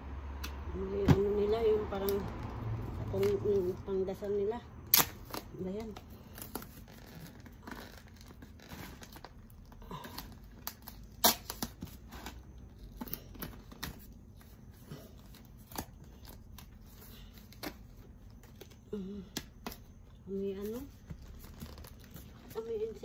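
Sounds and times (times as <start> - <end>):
packing materials rustling and crinkling: 5.0 - 23.0.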